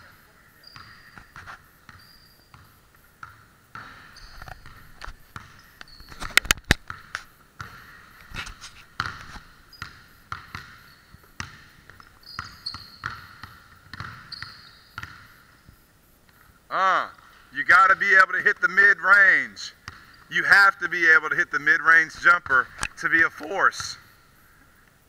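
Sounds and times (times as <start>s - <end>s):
basketball bouncing on hardwood floor: 0.7s - 6.1s, 6.7s - 7.9s, 9.0s - 15.4s.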